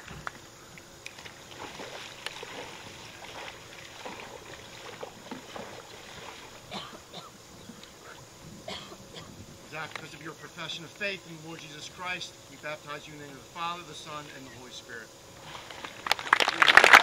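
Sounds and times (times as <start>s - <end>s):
lake water sloshing: 0.8s - 13.1s, 15.4s - 17.0s
small splashes: 1.0s - 7.0s.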